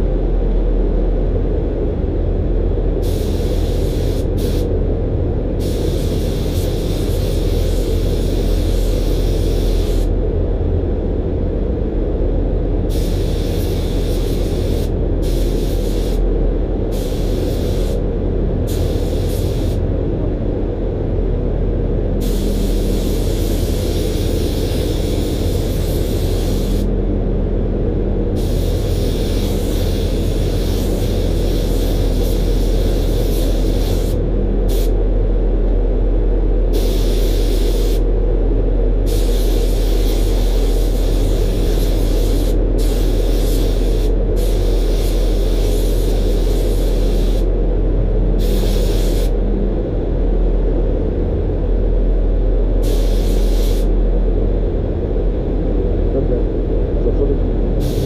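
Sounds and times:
low rumble: 0:00.0 - 0:58.0
spray gun air hiss: 0:03.0 - 0:04.7, 0:05.6 - 0:10.1, 0:12.9 - 0:16.2, 0:16.9 - 0:18.0, 0:18.7 - 0:19.8, 0:22.2 - 0:26.9, 0:28.4 - 0:35.0, 0:36.7 - 0:38.1, 0:39.0 - 0:47.5, 0:48.4 - 0:49.4, 0:52.8 - 0:53.9, 0:57.8 - 0:58.0.

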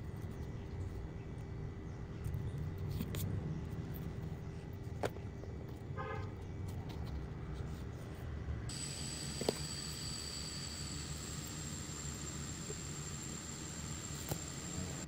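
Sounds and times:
low rumble of traffic: 0:00.0 - 0:15.0
thin high whine: 0:08.7 - 0:15.0.

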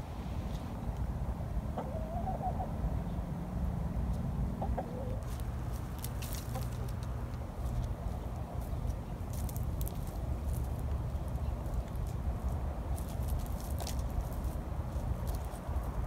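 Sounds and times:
hens clucking: 0:01.7 - 0:02.8, 0:04.5 - 0:05.4, 0:06.0 - 0:07.1
steady low rumble: 0:02.6 - 0:16.0.

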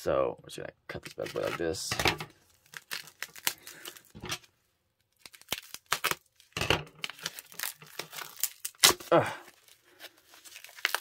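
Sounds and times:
plastic wrapping tearing and crinkling: 0:02.4 - 0:11.0.

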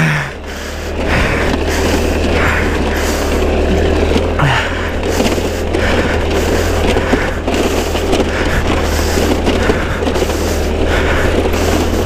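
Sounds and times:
scooter engine running: 0:00.0 - 0:12.0
tyre noise on snow: 0:00.2 - 0:12.0
wind rumble on microphone: 0:05.6 - 0:12.0.

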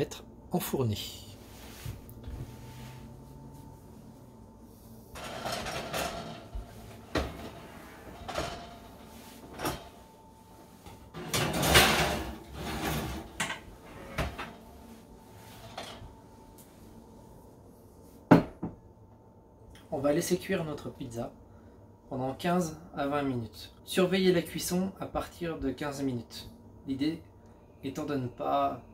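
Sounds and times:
oven door opening and shutting: 0:05.1 - 0:10.0, 0:11.1 - 0:14.6
knocks and clanks: 0:05.2 - 0:07.6.

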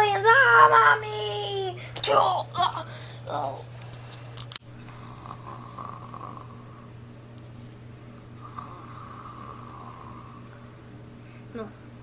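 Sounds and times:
person imitating snoring: 0:04.9 - 0:06.9, 0:08.4 - 0:10.5.

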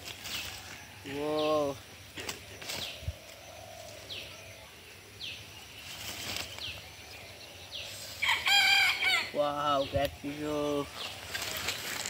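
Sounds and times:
bird chirping: 0:00.0 - 0:12.0
leaves rustling: 0:00.0 - 0:12.0
rooster crowing: 0:08.2 - 0:09.4.

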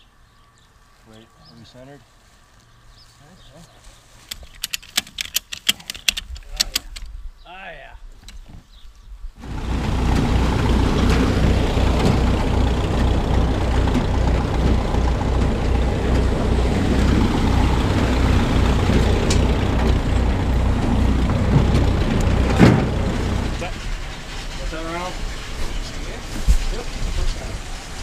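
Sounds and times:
tractor engine running: 0:09.4 - 0:28.0
metal clank: 0:21.2 - 0:26.7.

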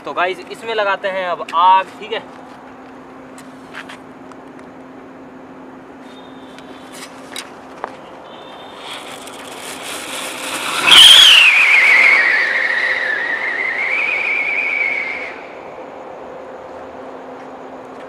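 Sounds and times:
rocket whistling: 0:06.0 - 0:07.2, 0:08.0 - 0:16.0
firework fuse fizzing: 0:08.4 - 0:15.5
rocket launch rush: 0:08.7 - 0:15.6.

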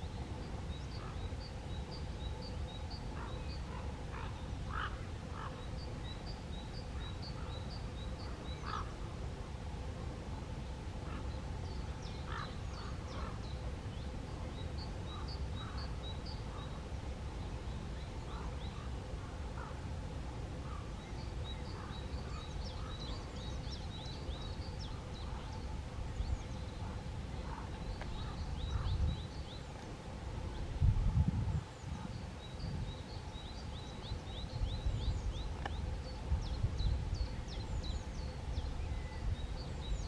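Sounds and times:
low bird calls: 0:00.0 - 0:09.2, 0:11.0 - 0:19.9, 0:20.5 - 0:30.8
birds chirping: 0:00.0 - 0:09.5, 0:10.3 - 0:30.8, 0:31.5 - 0:40.0.

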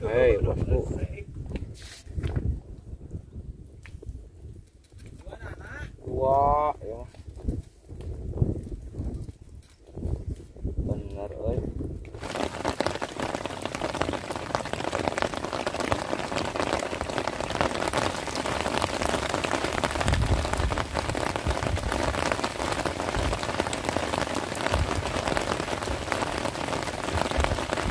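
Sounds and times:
heavy rain on water: 0:12.2 - 0:27.9.

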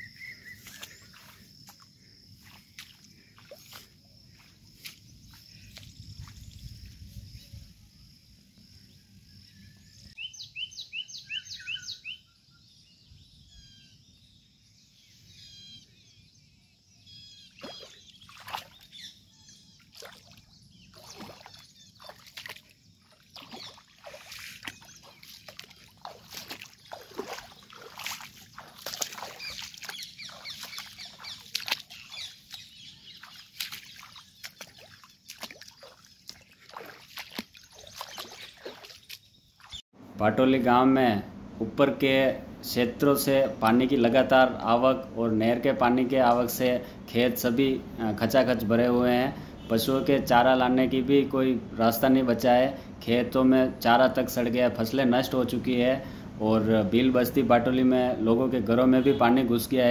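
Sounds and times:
footsteps through crops: 0:00.0 - 0:07.3, 0:19.8 - 0:39.8
birds chirping: 0:00.0 - 0:59.9
leaves and stems rustling: 0:22.0 - 0:39.8.

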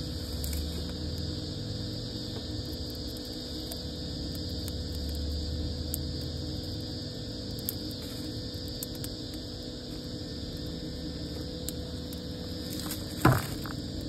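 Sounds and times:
fire crackling: 0:00.0 - 0:14.0
low fire rumble: 0:00.0 - 0:14.0.

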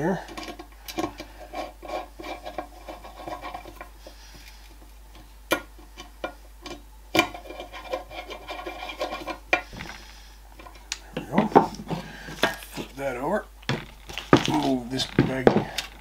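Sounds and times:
screwdriver scraping metal: 0:00.2 - 0:04.6, 0:07.2 - 0:09.7.

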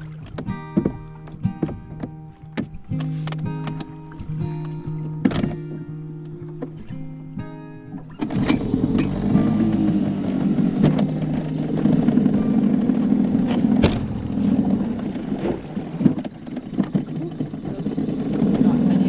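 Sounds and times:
small boat motor running: 0:00.0 - 0:19.0
sharp knocks: 0:10.8 - 0:18.2.

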